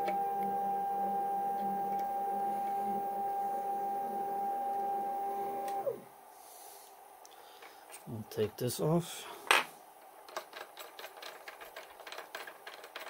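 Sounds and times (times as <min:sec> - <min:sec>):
motor whine of moving carriage: 0:00.0 - 0:06.0.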